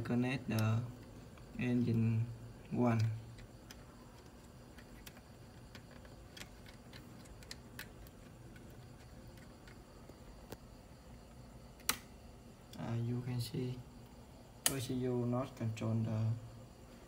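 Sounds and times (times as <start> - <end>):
light clicks of test leads: 0.0 - 13.0
low steady hum: 0.0 - 17.0.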